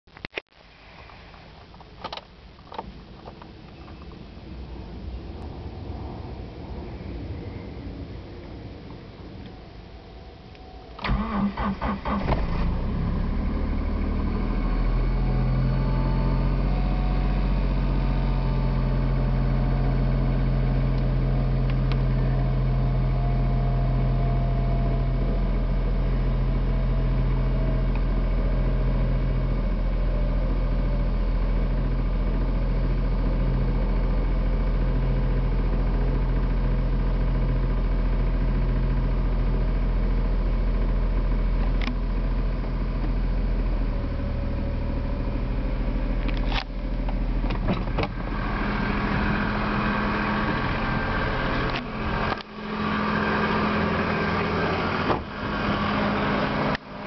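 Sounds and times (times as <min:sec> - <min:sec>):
starter motor cranking: 0:11.0 - 0:12.6.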